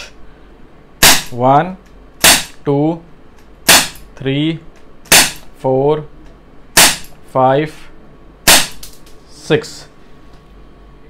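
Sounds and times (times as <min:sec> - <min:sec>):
air pistol shots: 0:01.0 - 0:01.4, 0:02.2 - 0:02.6, 0:03.6 - 0:04.1, 0:05.1 - 0:05.5, 0:06.8 - 0:07.2, 0:08.4 - 0:09.0
person counting: 0:01.3 - 0:01.9, 0:04.0 - 0:04.8, 0:05.4 - 0:06.2.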